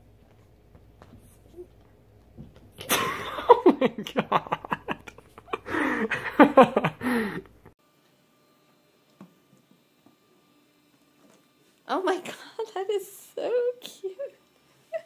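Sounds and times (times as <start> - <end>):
person giggling: 2.8 - 7.6.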